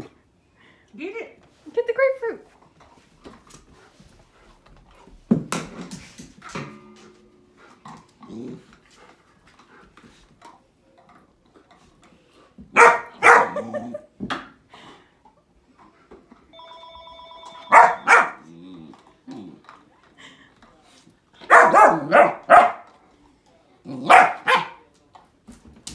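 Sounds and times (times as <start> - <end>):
puppy barking: 12.8 - 13.8, 17.7 - 18.4, 21.5 - 22.9, 24.0 - 24.9.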